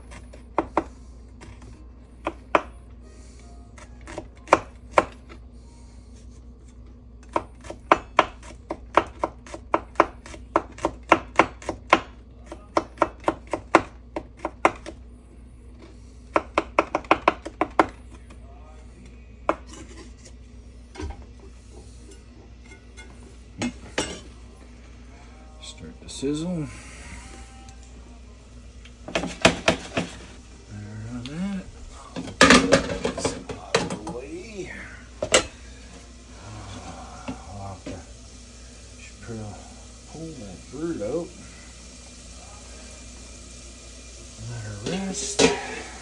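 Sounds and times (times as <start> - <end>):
knife chopping on wooden board: 0.1 - 1.6, 4.0 - 5.3, 7.2 - 15.0, 16.3 - 18.0, 29.1 - 30.2.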